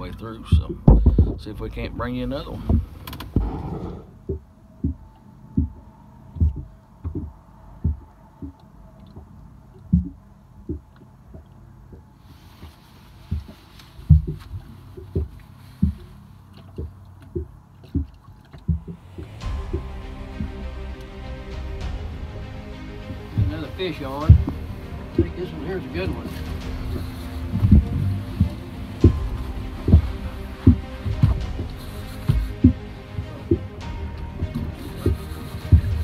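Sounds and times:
waves slapping boat hull: 6.4s - 20.6s, 23.1s - 36.0s.

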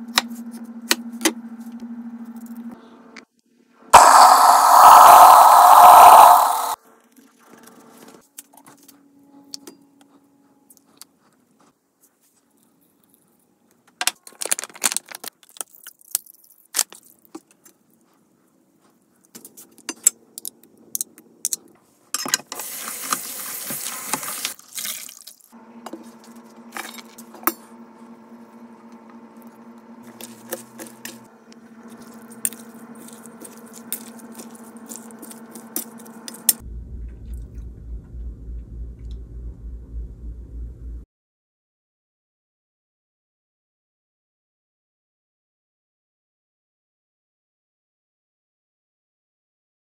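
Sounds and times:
steady low hum: 25.6s - 41.0s.

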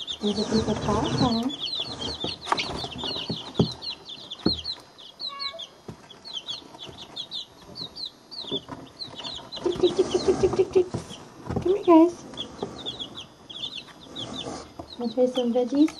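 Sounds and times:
chicks peeping: 0.0s - 15.9s
dull knocks: 2.0s - 4.8s.

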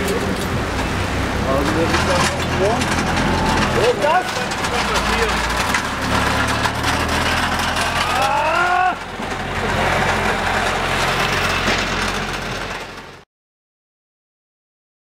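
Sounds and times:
constant noise: 0.0s - 13.2s
low engine hum: 0.0s - 13.2s
rising voice-like call: 7.7s - 9.1s.

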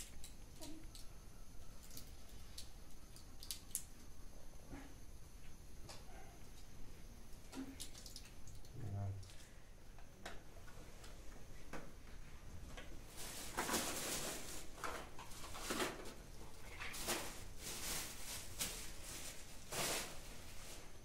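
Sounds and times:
plastic bag rustling: 13.1s - 21.0s.

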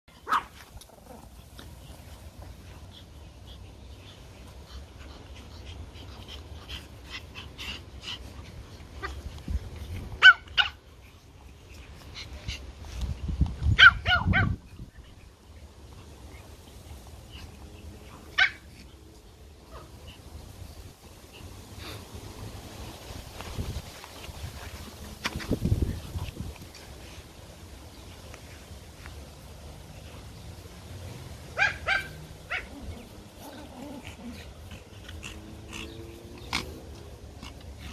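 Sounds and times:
puppies yapping: 17.2s - 20.4s, 31.5s - 37.9s.

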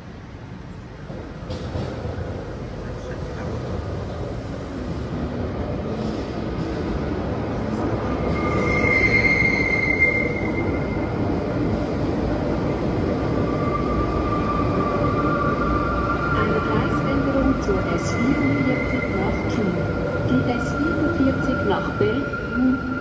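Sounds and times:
train rumbling: 0.0s - 23.0s
low squeal: 7.7s - 11.7s
high wheel squeal: 8.2s - 11.1s.

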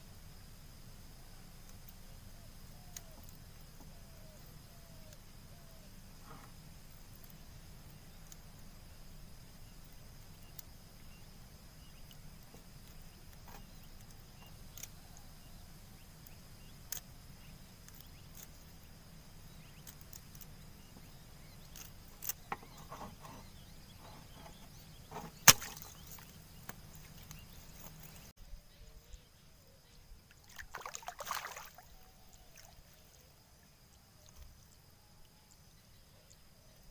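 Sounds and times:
net clicks and rustles: 24.0s - 28.3s.

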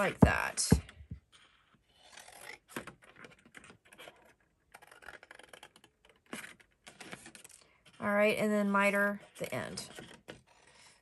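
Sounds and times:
paper rustling: 2.8s - 8.0s.

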